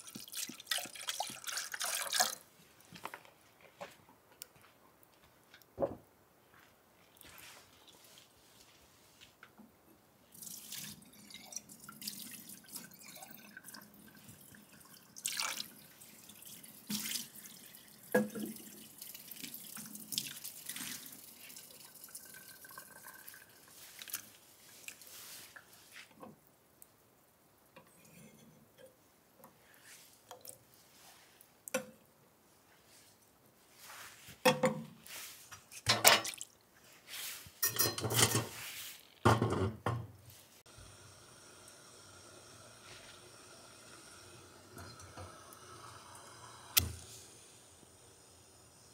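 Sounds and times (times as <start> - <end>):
small drips and ticks: 0.0 - 3.4, 10.3 - 27.0, 28.8 - 32.2
metal pot knocking and scraping: 37.6 - 38.6, 39.2 - 40.1.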